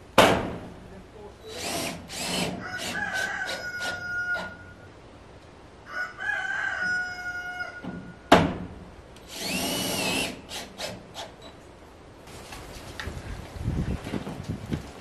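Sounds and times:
rooster crowing: 2.6s - 4.9s, 5.8s - 8.0s
power tool whirring: 9.3s - 11.3s.

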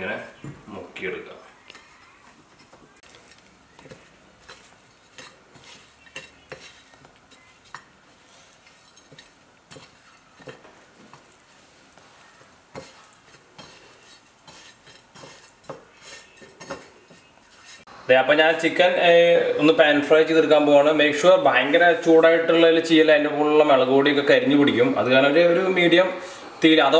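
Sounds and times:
hands rubbing meat on a plate: 1.8s - 17.9s.

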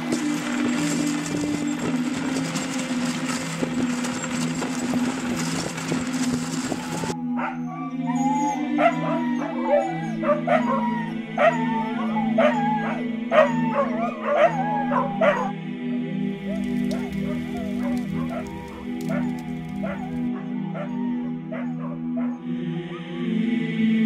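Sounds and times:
sled running over snow: 0.0s - 7.2s, 16.3s - 20.3s
sled dogs howling and yipping: 0.0s - 23.7s
soft music with low chords: 0.0s - 24.0s.

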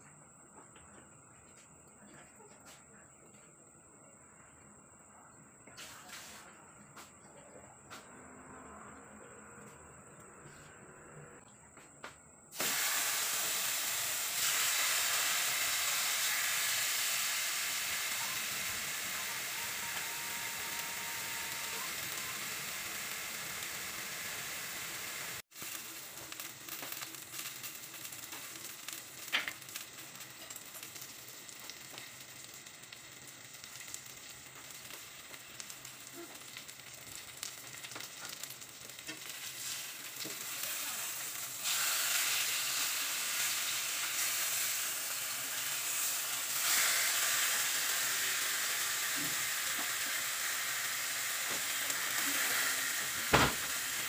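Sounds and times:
fish sizzling in a wok: 0.5s - 7.2s, 12.3s - 54.0s
small crackles: 25.4s - 54.0s.

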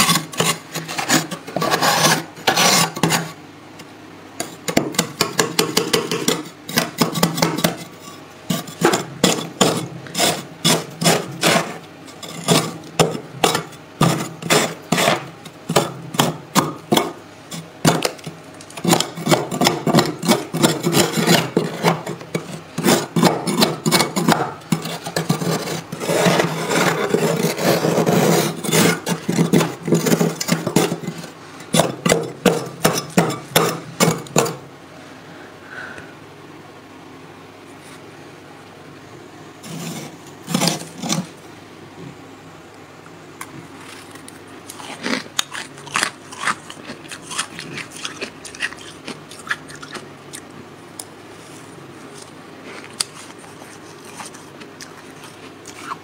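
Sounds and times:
tool scraping freezer frost: 0.0s - 3.4s, 4.4s - 34.6s, 39.6s - 41.4s, 51.4s - 56.0s.

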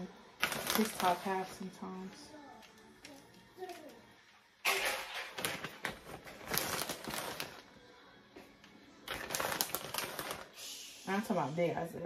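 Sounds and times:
plastic bag crinkling: 0.4s - 1.7s, 4.7s - 7.7s, 9.0s - 10.6s.

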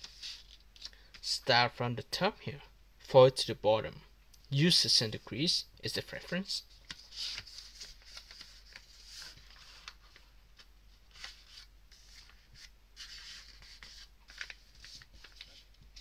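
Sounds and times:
paper rustling and crinkling: 6.7s - 16.0s.

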